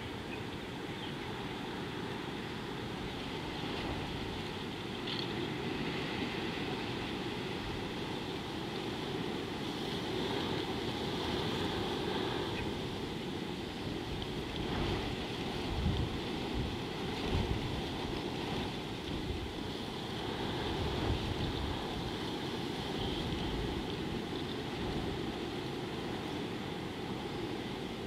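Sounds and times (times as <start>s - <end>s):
wind buffeting microphone: 9.6s - 28.0s.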